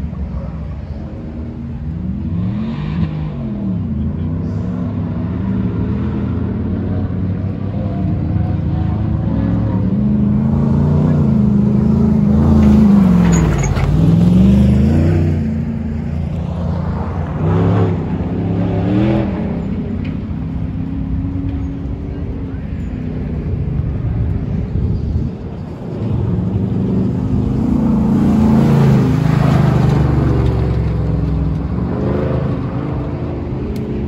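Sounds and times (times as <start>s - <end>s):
truck engine driving past: 7.8s - 34.0s.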